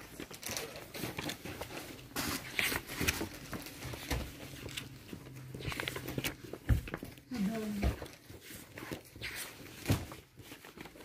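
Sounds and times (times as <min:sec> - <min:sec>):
paper pages rustling: 0:00.0 - 0:11.0.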